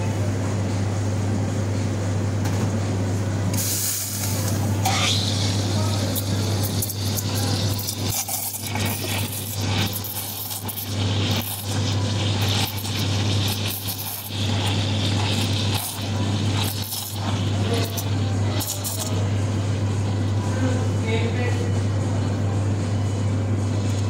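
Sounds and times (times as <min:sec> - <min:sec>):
low machine hum: 0:00.0 - 0:24.0
steam wand hissing in milk: 0:03.6 - 0:19.2.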